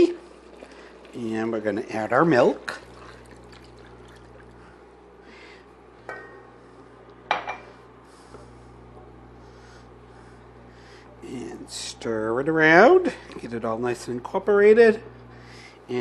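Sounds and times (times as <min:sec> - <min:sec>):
milk pouring into sauce: 0:00.0 - 0:04.7
steady low hum: 0:00.0 - 0:16.0.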